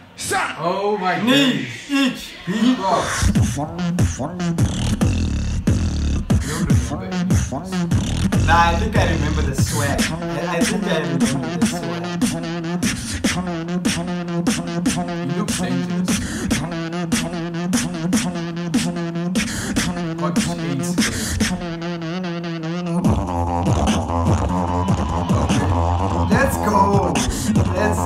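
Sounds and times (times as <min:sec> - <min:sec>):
hummed bass line: 0:03.2 - 0:12.8, 0:19.8 - 0:28.0
beatboxing snare and hi-hat clicks: 0:03.2 - 0:28.0.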